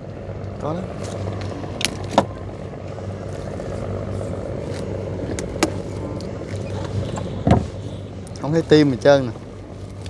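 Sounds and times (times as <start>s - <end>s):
small boat engine humming: 0.0s - 10.0s.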